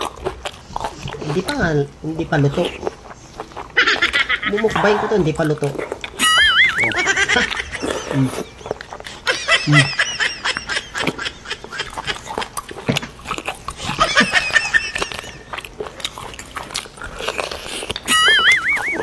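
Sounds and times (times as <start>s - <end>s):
high squeaky slurping: 17.9s - 19.0s.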